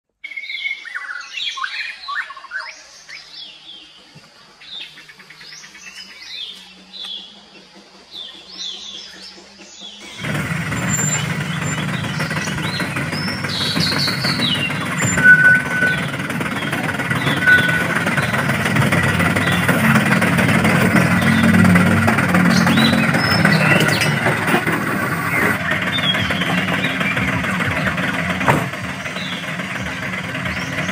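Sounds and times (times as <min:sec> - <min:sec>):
birds chirping: 0:00.2 - 0:30.9
toy truck motor humming: 0:08.0 - 0:30.9.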